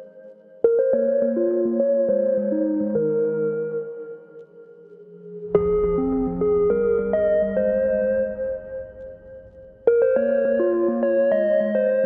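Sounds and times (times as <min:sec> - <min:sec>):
slow ambient tune struck notes: 0:04.5 - 0:11.0.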